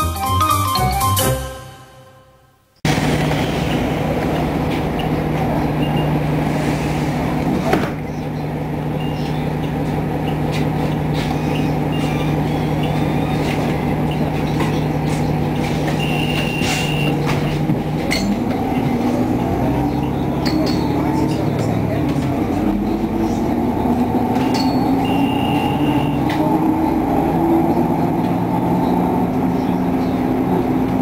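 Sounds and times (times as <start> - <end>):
brief loud burst: 2.9 - 4.1
bus diesel engine idling: 2.9 - 31.0
high beep: 5.8 - 6.2, 9.0 - 9.4, 11.5 - 14.3, 16.0 - 17.2, 24.4 - 26.3.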